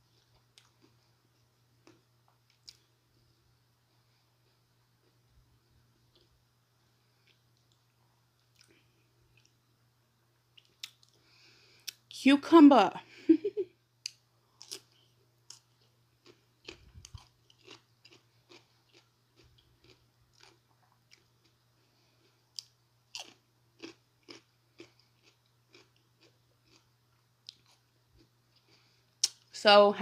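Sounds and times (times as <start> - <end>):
cucumber crunching while chewed: 14.0 - 21.6, 22.5 - 29.4.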